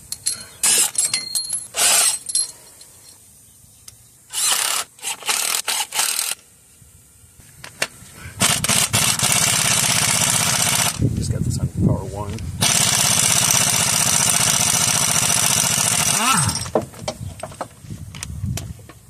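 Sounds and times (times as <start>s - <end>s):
metal bolts clinking and rattling: 0.0s - 3.2s
impact wrench running: 4.3s - 6.4s, 8.4s - 11.0s, 12.6s - 16.8s.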